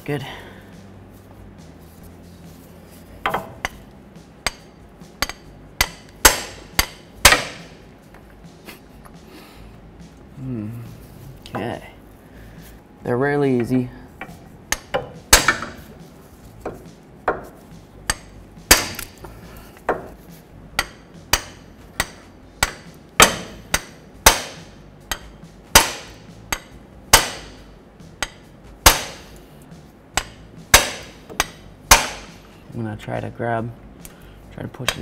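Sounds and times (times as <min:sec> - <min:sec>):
hammer striking metal tool: 0:03.2 - 0:03.8, 0:04.4 - 0:07.8, 0:14.2 - 0:15.8, 0:16.6 - 0:19.3, 0:20.8 - 0:29.4, 0:30.2 - 0:32.4.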